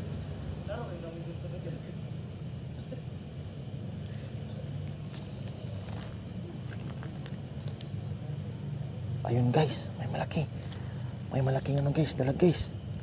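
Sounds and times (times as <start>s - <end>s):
crickets trilling: 0.0s - 13.0s
faint footsteps on loose stones: 4.8s - 8.2s.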